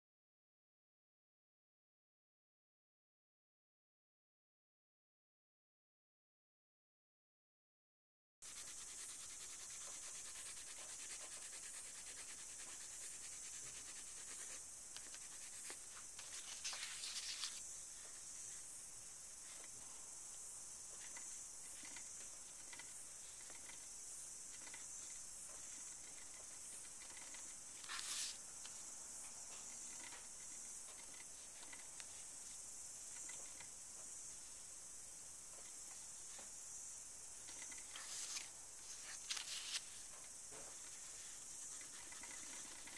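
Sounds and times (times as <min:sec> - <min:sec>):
chalk pastel scratching on paper: 0:08.4 - 0:18.7, 0:24.6 - 0:28.4, 0:37.6 - 0:39.9, 0:40.7 - 0:42.9.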